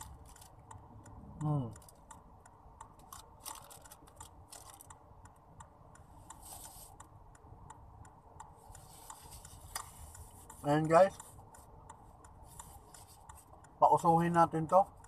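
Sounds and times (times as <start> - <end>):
small clicks of handling: 2.8 - 5.0.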